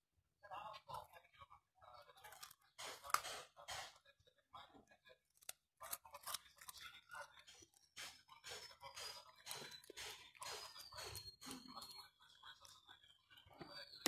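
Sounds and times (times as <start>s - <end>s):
puppy crunching raw carrot: 5.3s - 11.6s.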